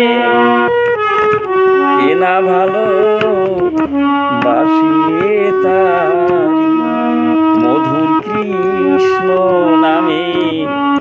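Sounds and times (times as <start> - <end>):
harmonium: 0.0 - 11.0
man singing folk song: 2.0 - 6.9, 7.5 - 11.0.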